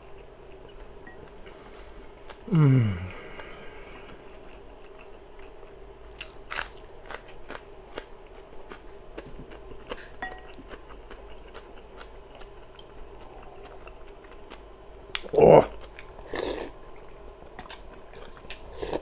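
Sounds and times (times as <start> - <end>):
close-up chewing with crunches: 4.0 - 19.0.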